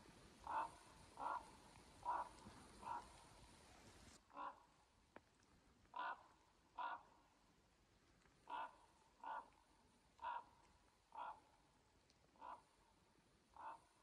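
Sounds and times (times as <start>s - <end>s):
crow cawing: 0.4s - 3.2s, 5.9s - 7.1s, 8.5s - 9.5s, 10.2s - 10.5s, 13.6s - 13.9s.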